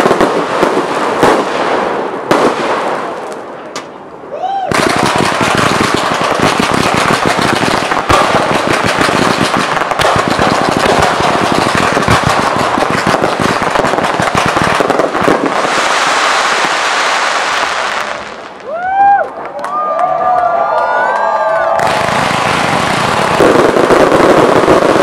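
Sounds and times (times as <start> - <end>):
firework crackle: 0.0 - 3.9, 4.7 - 19.2, 21.7 - 25.0
firework shell bursts: 4.7 - 16.2.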